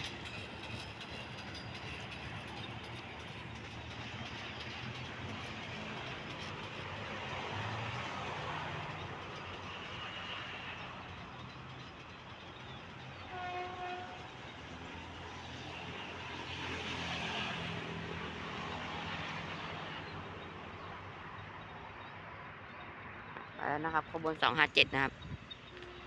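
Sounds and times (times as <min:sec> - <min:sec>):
diesel locomotive running: 0:00.0 - 0:26.0
locomotive horn blast: 0:13.3 - 0:14.3, 0:25.7 - 0:26.0.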